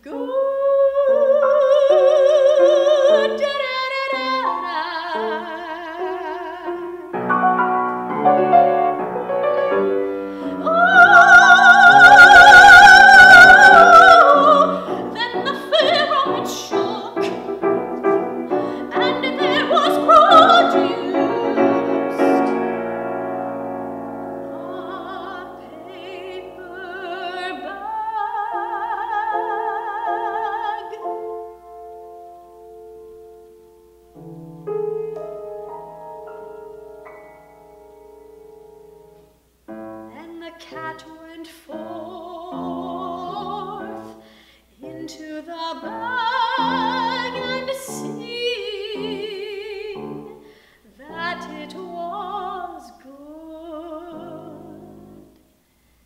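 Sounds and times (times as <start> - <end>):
woman singing operatically: 0.0 - 7.1, 9.1 - 17.7, 18.4 - 22.2, 24.3 - 31.3, 40.1 - 44.2, 44.8 - 55.2
piano accompaniment: 0.0 - 55.4.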